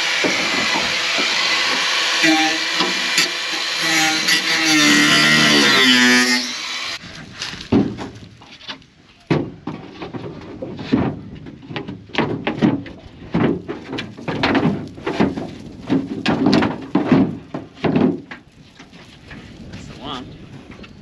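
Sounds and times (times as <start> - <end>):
knocks and clunks of timber sheet: 0.0 - 1.8, 7.0 - 19.8
cordless power tool running: 0.0 - 7.0.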